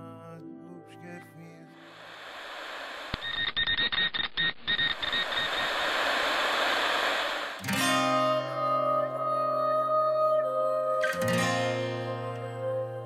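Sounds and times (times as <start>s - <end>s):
stuttering hiss-like noise effect: 1.8s - 7.8s.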